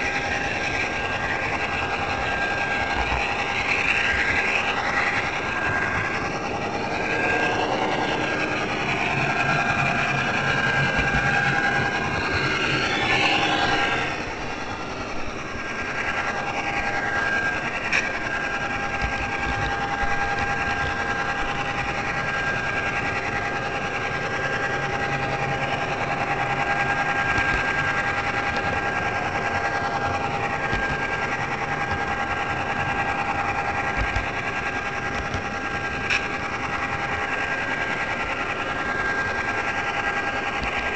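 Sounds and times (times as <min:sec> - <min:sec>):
model train motor whine: 0:00.0 - 0:40.9
wheels rattling on track: 0:00.0 - 0:40.9.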